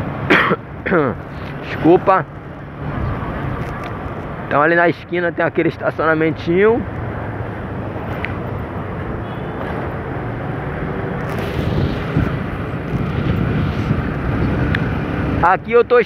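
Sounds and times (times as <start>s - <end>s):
road noise: 0.0s - 16.0s
wind on microphone: 10.9s - 15.7s.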